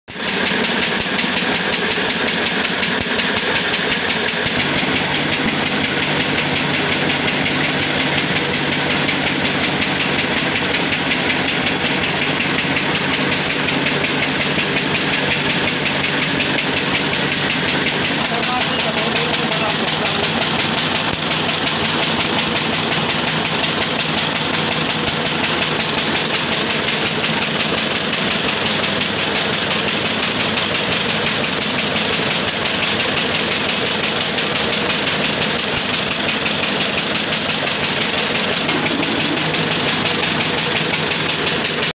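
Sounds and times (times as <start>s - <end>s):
stationary diesel engine running: 0.1s - 42.0s.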